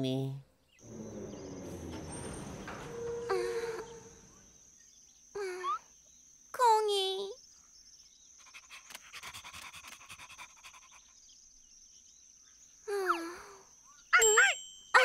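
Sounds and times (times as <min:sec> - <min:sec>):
cartoon puppy panting: 0:08.4 - 0:11.1.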